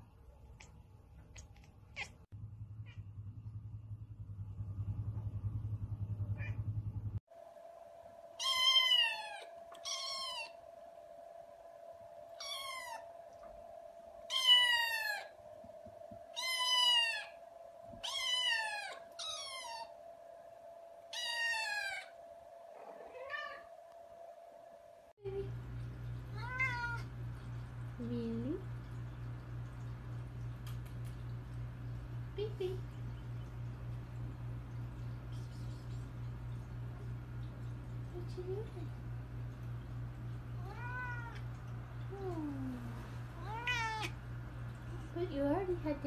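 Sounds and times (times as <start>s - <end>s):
low buzzing rumble: 0.0s - 46.0s
steady background hum: 0.0s - 46.0s
kittens meowing: 16.4s - 17.3s, 18.0s - 19.9s, 40.6s - 41.4s, 43.4s - 44.2s.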